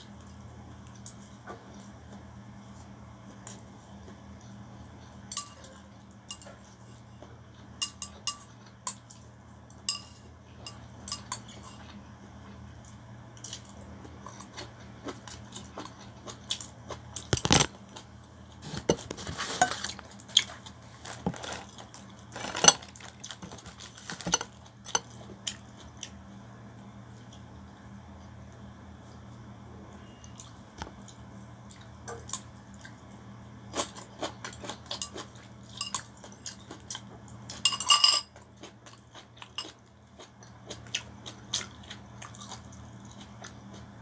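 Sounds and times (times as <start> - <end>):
chopsticks clinking on ceramic bowl: 9.9 - 11.8, 24.1 - 25.1, 37.5 - 38.4.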